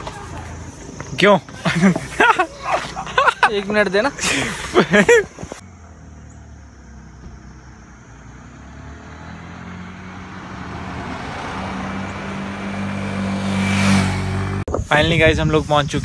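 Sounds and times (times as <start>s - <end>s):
car engine approaching: 2.8s - 14.7s
motorcycle engine approaching: 5.6s - 14.7s.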